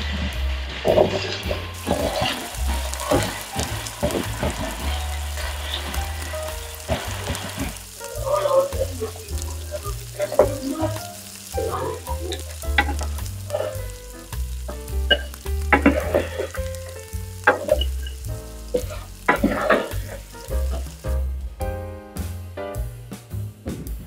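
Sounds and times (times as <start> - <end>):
potatoes sizzling in oil: 0.0 - 21.6
wooden spatula scraping pan: 17.5 - 20.8.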